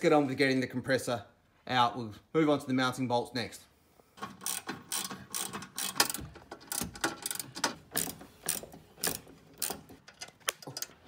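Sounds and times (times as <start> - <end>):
socket ratchet clicking: 4.2 - 10.9.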